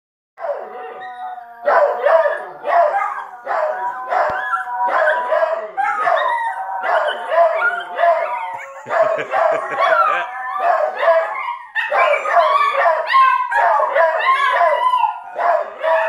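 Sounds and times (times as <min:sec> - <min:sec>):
dogs howling together: 0:00.4 - 0:16.0.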